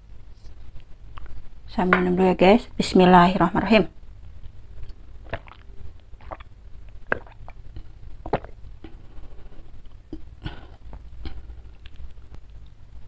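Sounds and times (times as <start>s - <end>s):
person gulping water: 5.2s - 9.0s, 10.0s - 12.1s.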